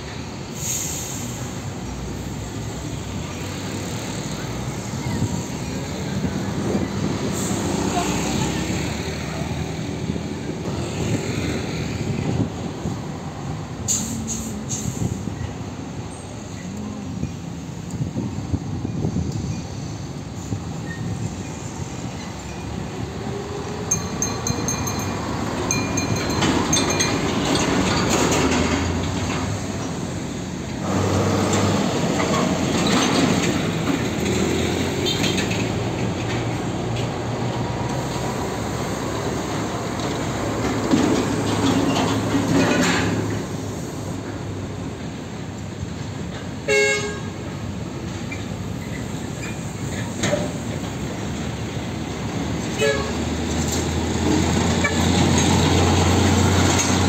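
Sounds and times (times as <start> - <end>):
diesel truck engine rumble: 0.0 - 57.0
tyre and trailer rattle: 23.9 - 30.2, 39.8 - 43.6.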